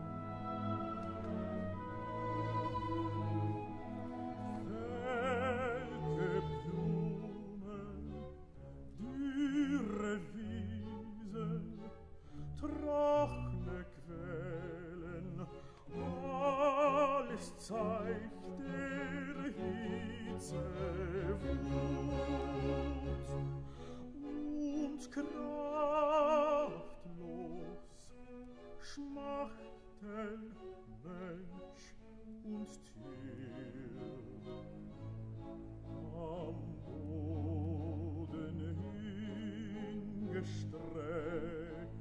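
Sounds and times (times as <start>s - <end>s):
orchestra playing: 0.0s - 42.0s
operatic voice singing: 8.9s - 11.9s, 12.6s - 34.7s, 36.0s - 42.0s.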